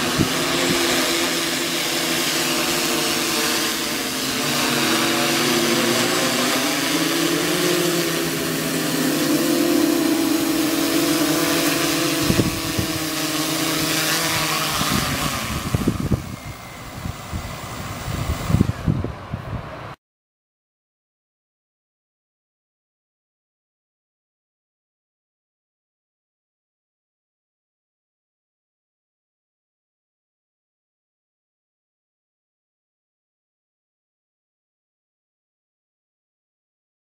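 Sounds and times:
drone propellers whining: 0.0 - 20.0.

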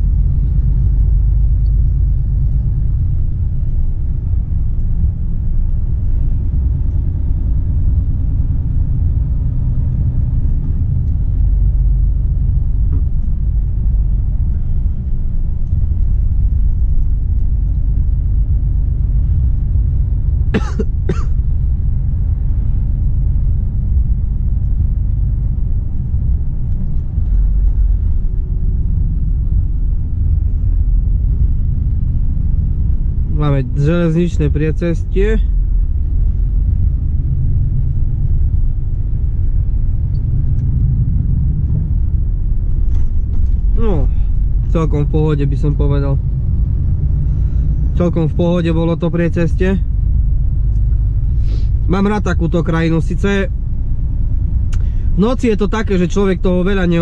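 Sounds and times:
truck diesel engine rumble: 0.0 - 57.0
engine coughs: 20.5 - 21.5.

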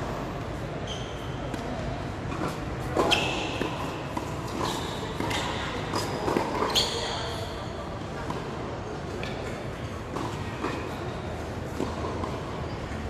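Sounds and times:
tennis rackets hitting ball: 1.5 - 7.0, 11.7 - 12.6.

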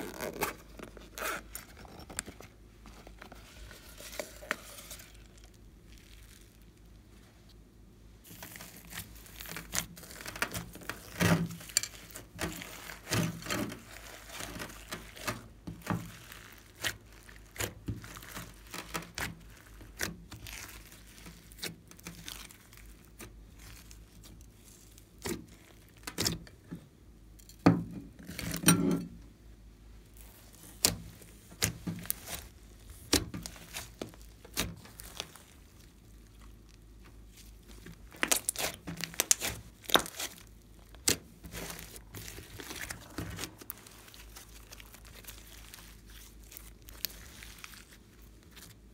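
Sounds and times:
slime squishing: 0.0 - 7.5, 8.2 - 26.4, 30.0 - 48.9
sticky slime crackles and pops: 8.3 - 26.3, 30.2 - 48.9.

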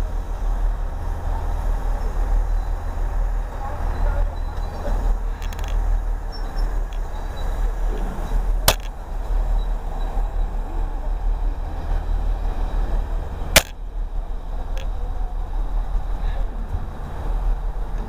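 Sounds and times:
train coaches rumbling past: 0.0 - 18.0
sharp clicks: 8.6 - 9.0, 13.6 - 13.8.

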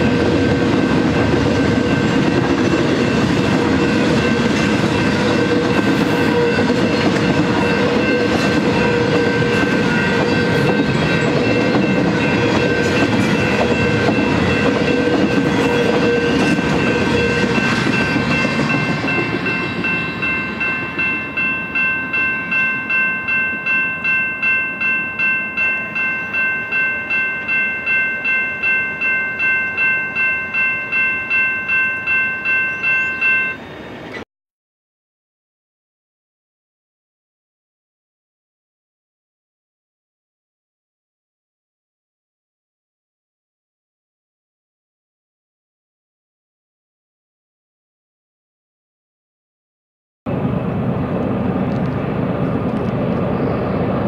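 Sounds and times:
crossing bell dinging: 0.0 - 34.2.

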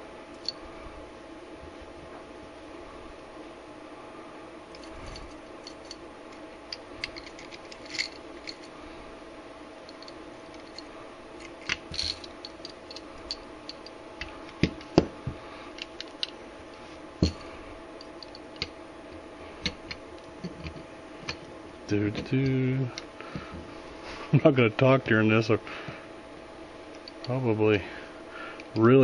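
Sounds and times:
faint background hum: 0.0 - 29.0
metal parts clicking and scraping: 4.8 - 8.7, 9.9 - 13.9.

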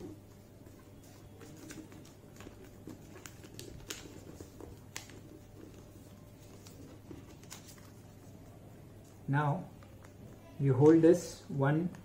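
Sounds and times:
paper crackling as creased: 0.6 - 8.4.

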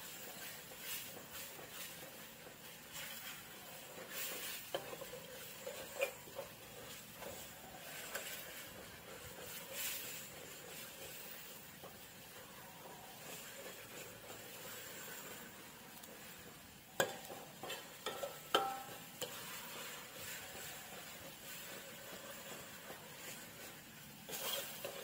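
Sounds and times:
metal ladle scraping wok: 0.0 - 25.0
paste sizzling: 0.0 - 25.0.

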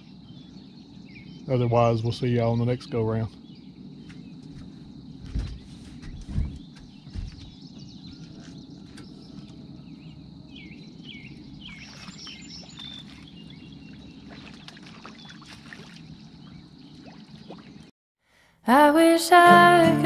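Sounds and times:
steady low hum: 0.0 - 15.0
birds chirping: 0.0 - 17.9.

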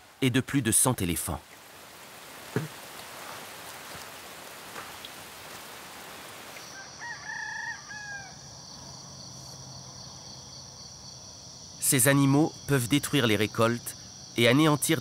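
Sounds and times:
outdoor ambient hiss: 0.0 - 15.0
high insect drone: 1.7 - 15.0
rooster crowing: 6.6 - 8.8.

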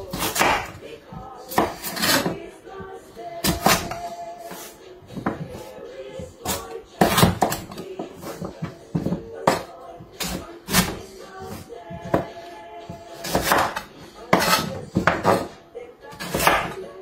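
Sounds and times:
knife chopping on wooden board: 0.0 - 0.8, 1.5 - 2.4, 3.4 - 5.6, 6.4 - 12.4, 13.1 - 15.5, 16.2 - 16.8
faint background music: 0.0 - 17.0.

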